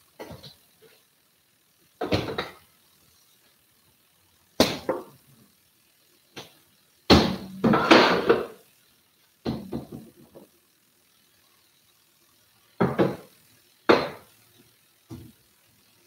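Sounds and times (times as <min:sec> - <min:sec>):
sharp knocks and clattering: 0:02.0 - 0:02.6, 0:09.4 - 0:10.5, 0:12.8 - 0:13.3, 0:13.9 - 0:14.2.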